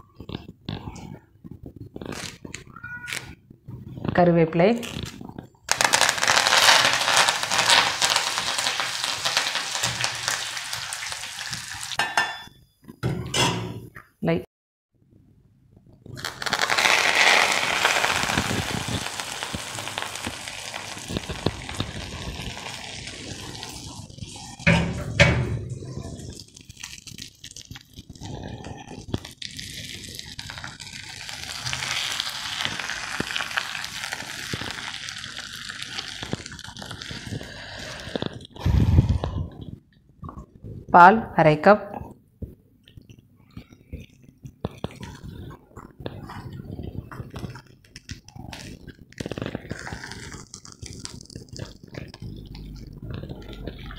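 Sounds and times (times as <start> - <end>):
spices sizzling in hot oil: 5.7 - 12.2, 16.2 - 24.7, 29.3 - 38.0.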